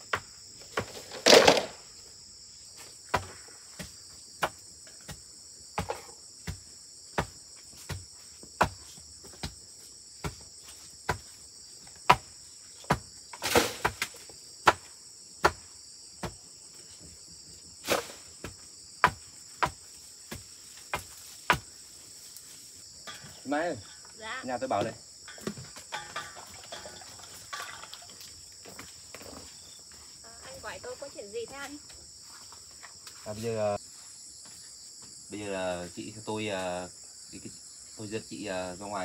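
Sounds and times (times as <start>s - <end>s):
insects chirring: 0.0s - 39.0s
scrape or rustle: 17.8s - 18.3s
sharp knocks: 24.8s - 26.9s.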